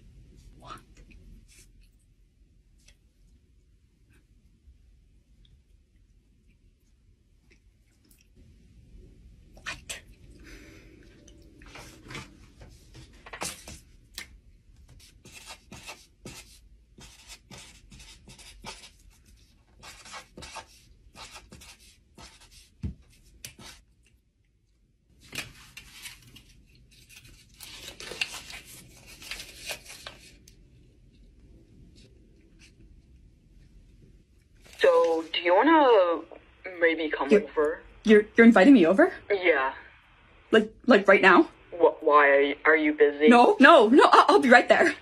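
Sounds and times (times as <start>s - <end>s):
marker scratching on paper: 14.9s - 19.1s, 19.8s - 22.8s
paper handling: 25.2s - 30.6s.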